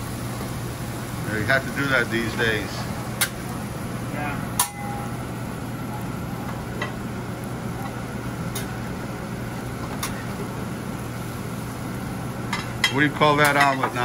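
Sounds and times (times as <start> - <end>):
griddle hum and hiss: 0.0 - 14.0
spatula clinking on griddle: 4.6 - 5.1, 12.5 - 14.0.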